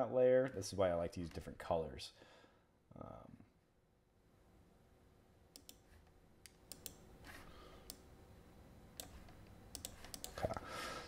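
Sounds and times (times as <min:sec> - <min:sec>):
computer mouse clicks: 0:05.5 - 0:07.1, 0:07.8 - 0:08.1, 0:09.0 - 0:10.6.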